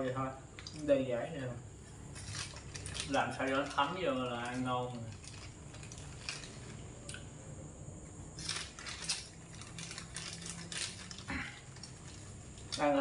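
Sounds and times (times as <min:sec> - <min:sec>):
wrapper crinkling: 0:02.1 - 0:06.8, 0:08.4 - 0:13.0.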